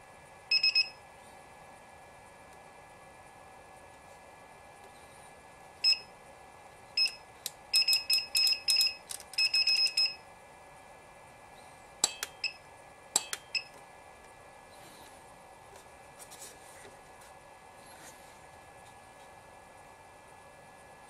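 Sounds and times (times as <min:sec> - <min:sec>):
control panel beeps: 0:00.5 - 0:01.0, 0:05.8 - 0:06.1, 0:07.0 - 0:10.2, 0:12.1 - 0:12.6, 0:13.2 - 0:13.8.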